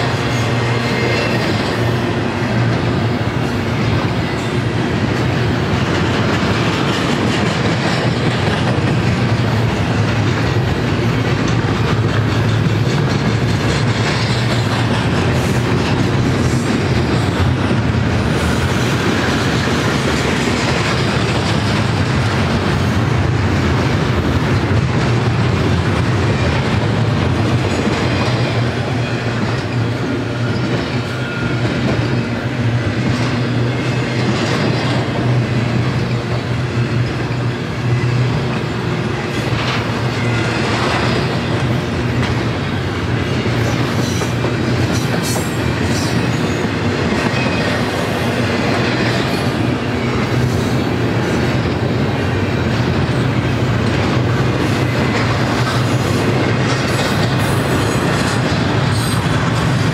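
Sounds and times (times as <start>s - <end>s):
freight train wheels rumbling on rail: 0.0s - 59.9s
wheels clicking over rail joints: 2.6s - 59.9s
faint high wheel squeal: 28.8s - 32.3s.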